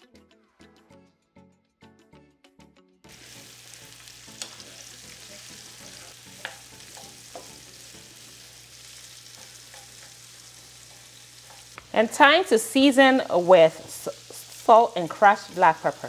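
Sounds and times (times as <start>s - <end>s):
background music: 0.0s - 13.7s
onion sizzling in hot oil: 3.1s - 16.0s
spatula clicking against pan: 9.4s - 10.2s.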